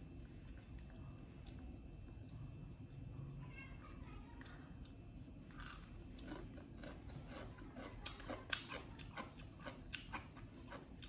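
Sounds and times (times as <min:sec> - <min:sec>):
food crunching: 0:04.4 - 0:11.0.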